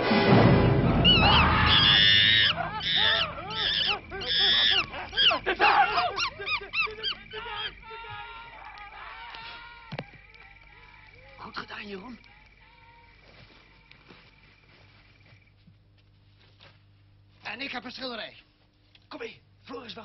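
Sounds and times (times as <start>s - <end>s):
chimpanzee screeching and hooting: 1.0s - 11.5s.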